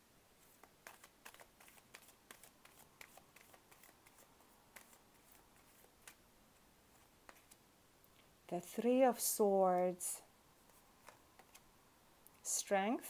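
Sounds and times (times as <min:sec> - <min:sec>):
cards shuffling: 0:00.4 - 0:06.2, 0:06.9 - 0:07.6, 0:10.6 - 0:11.7.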